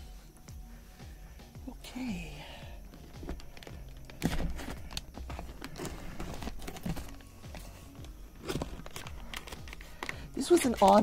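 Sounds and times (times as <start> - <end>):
plastic crinkling and rustling: 2.9 - 11.0.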